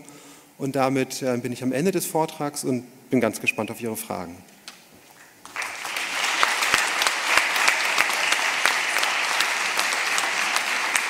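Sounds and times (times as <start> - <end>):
audience applause: 5.4 - 11.0.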